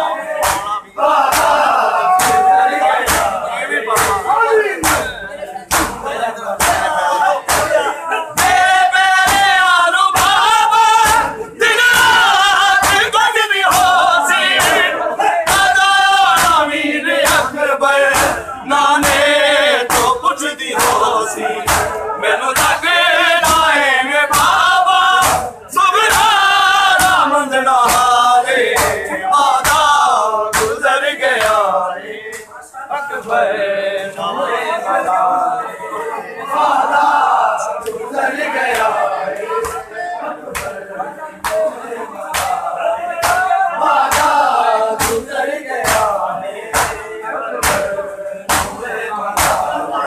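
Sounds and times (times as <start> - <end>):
men chanting together: 0.0 - 50.0
chest-beating slaps: 0.4 - 22.8, 23.4 - 30.8, 38.7 - 39.9, 40.5 - 40.8, 42.3 - 49.8.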